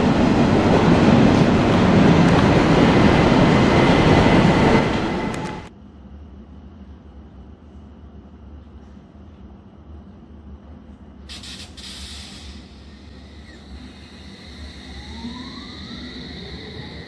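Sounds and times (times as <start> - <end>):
air hiss: 11.3 - 15.1
train traction motor whine: 12.5 - 17.0.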